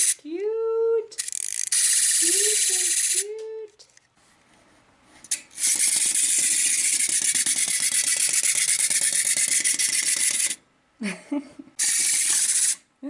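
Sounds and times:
clockwork toy whirring: 0:00.0 - 0:00.2, 0:01.1 - 0:03.4, 0:05.3 - 0:10.6, 0:11.8 - 0:12.9.

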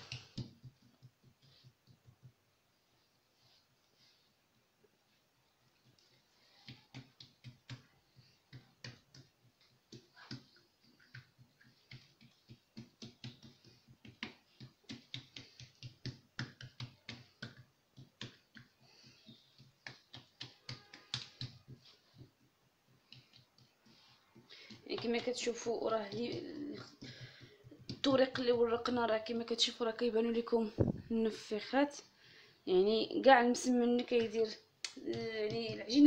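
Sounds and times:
hands patting dough: 0:00.0 - 0:29.7, 0:32.9 - 0:36.0.

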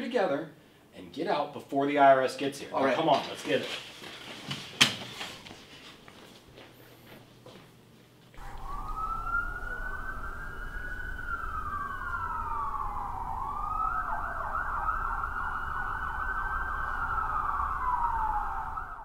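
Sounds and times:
emergency vehicle siren: 0:08.4 - 0:19.0
low rumble: 0:08.4 - 0:19.0.

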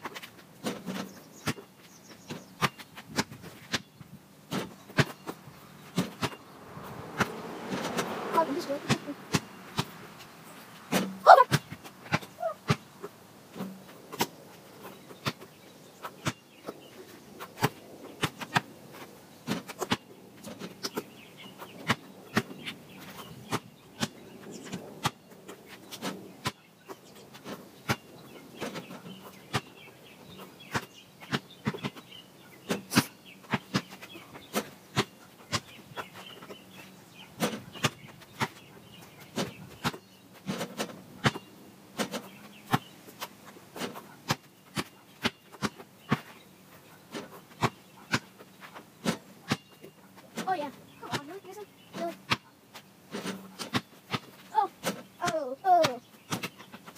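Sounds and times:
ball hitting rim and backboard: 0:05.9 - 0:06.4, 0:07.1 - 0:09.9, 0:10.9 - 0:12.8.

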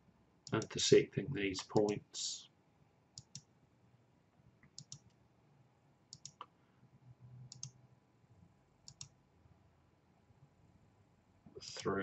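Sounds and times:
computer mouse clicking: 0:00.4 - 0:00.7, 0:01.7 - 0:02.0, 0:03.2 - 0:03.5, 0:04.6 - 0:05.2, 0:06.1 - 0:06.5, 0:07.5 - 0:07.8, 0:08.8 - 0:09.1.

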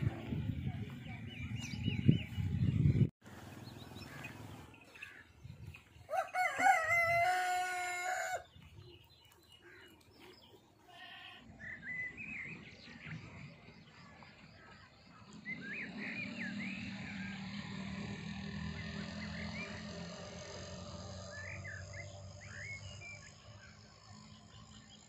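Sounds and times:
small birds chirping: 0:00.0 - 0:06.2
rooster crowing: 0:06.1 - 0:08.4.

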